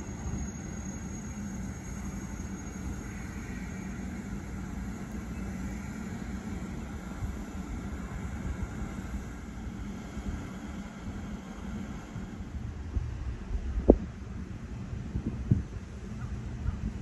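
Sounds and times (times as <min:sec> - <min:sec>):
train rumbling into station: 0:00.0 - 0:17.0.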